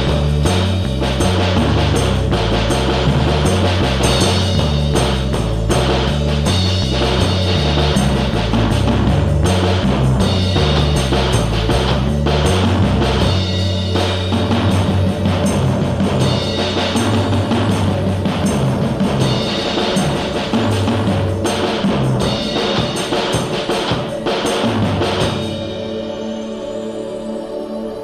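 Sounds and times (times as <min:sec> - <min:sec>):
stepping bass line: 0:00.0 - 0:25.6
drum kit beat: 0:00.0 - 0:26.2.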